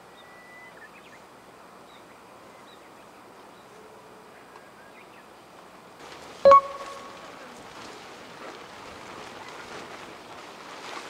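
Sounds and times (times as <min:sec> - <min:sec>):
faint high chirps: 0:06.5 - 0:07.2.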